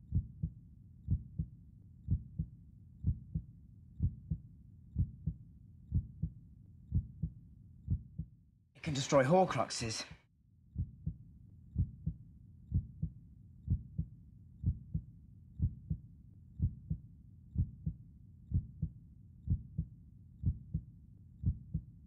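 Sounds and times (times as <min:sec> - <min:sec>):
heartbeat thumps: 0:00.1 - 0:01.5, 0:02.1 - 0:04.4, 0:05.0 - 0:08.3, 0:10.8 - 0:11.2, 0:11.8 - 0:16.0, 0:16.6 - 0:17.0, 0:17.6 - 0:21.9.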